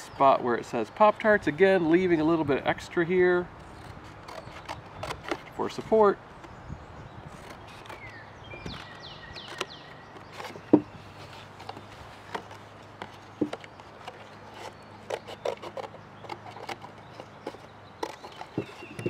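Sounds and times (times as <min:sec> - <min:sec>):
scissors cutting cardboard: 0:03.7 - 0:06.0, 0:07.3 - 0:19.0.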